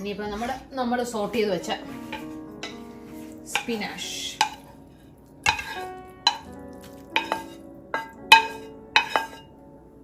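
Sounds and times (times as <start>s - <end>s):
metal utensil clinking on dish: 5.5s - 9.4s.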